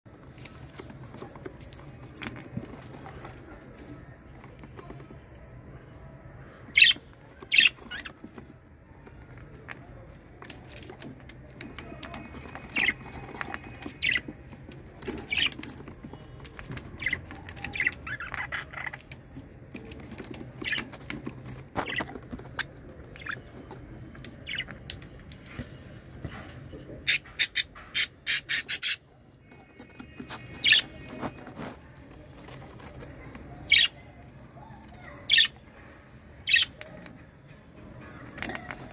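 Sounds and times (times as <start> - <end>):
budgerigar chicks chirping: 6.4 - 8.4, 11.7 - 16.0, 16.6 - 24.8, 27.1 - 29.1, 29.8 - 31.7, 32.8 - 37.1.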